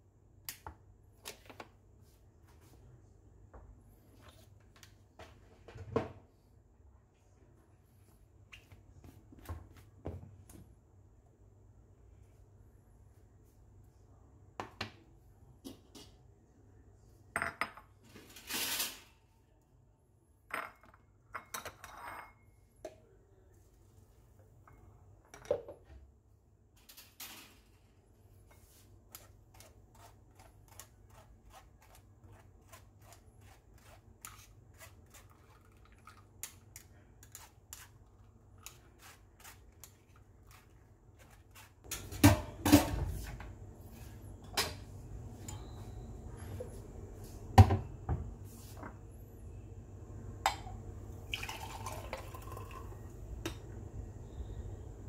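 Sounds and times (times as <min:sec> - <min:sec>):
kitchenware clinking and knocking: 0:41.9 - 0:43.2.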